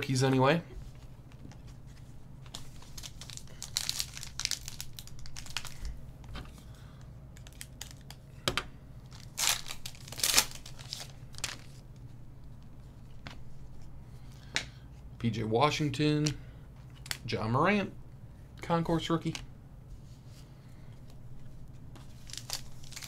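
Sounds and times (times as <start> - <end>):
foil wrapper crinkling and tearing: 2.5 - 6.0, 7.4 - 8.2, 9.1 - 11.8, 22.0 - 23.0.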